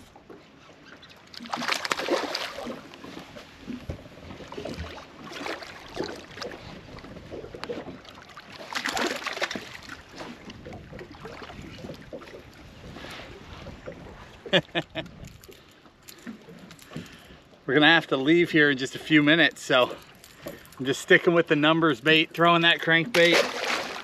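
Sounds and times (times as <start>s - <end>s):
water splashing: 1.1s - 14.1s, 22.7s - 24.0s.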